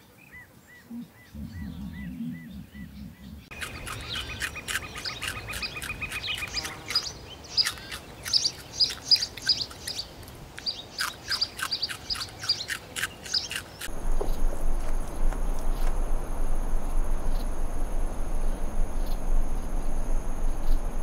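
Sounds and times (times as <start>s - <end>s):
birds chirping: 0.0s - 21.0s
high bird trill: 0.3s - 14.4s.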